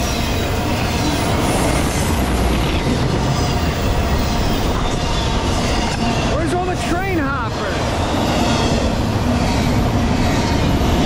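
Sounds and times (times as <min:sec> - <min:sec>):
freight train wheels clattering on rails: 0:00.0 - 0:11.0.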